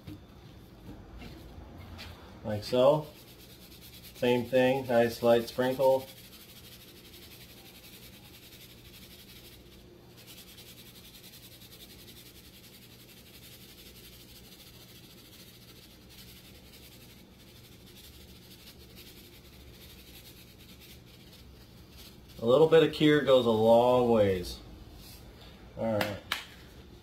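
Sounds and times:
low steady hum: 0.0 - 27.0
granules sprinkling from shaker: 2.6 - 24.4.

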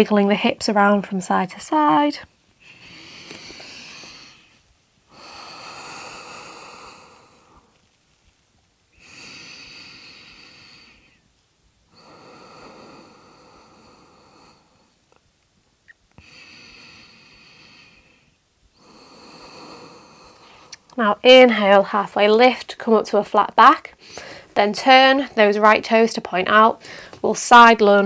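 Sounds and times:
person breathing slowly: 2.6 - 7.9, 9.0 - 11.3, 11.9 - 15.0, 16.2 - 20.9, 24.0 - 24.6, 26.8 - 27.2.

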